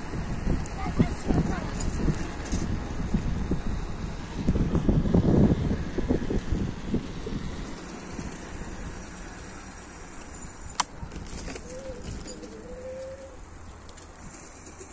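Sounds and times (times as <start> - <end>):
wind buffeting microphone: 0.0 - 8.8
bicycle tyre rumble: 0.0 - 14.9.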